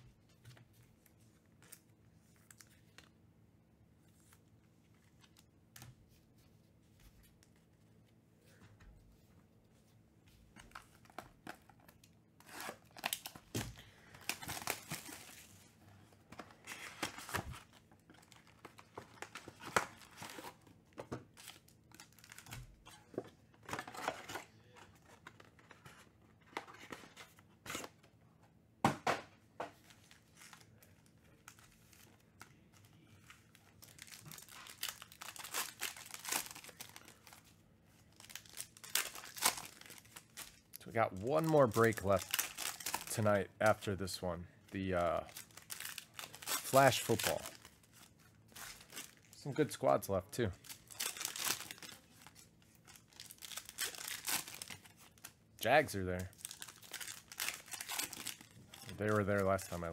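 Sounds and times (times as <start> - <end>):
foil wrappers tearing and crinkling: 12.4 - 15.6, 16.6 - 20.6, 33.4 - 43.2, 45.2 - 49.4, 50.6 - 59.7.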